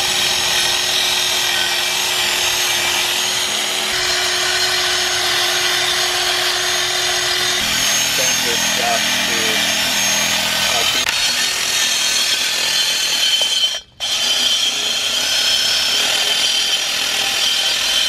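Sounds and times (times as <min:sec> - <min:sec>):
drill motor whine: 0:00.0 - 0:18.0
brush scraping metal: 0:07.5 - 0:13.5.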